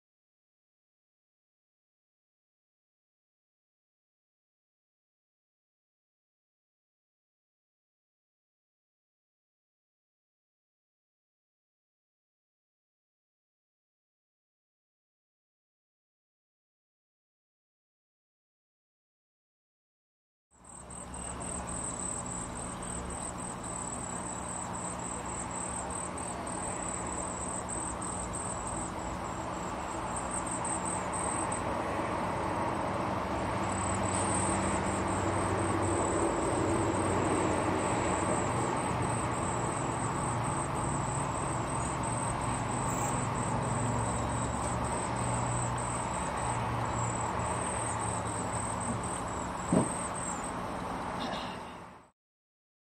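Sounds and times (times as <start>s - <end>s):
insects chirring: 20.6s - 52.0s.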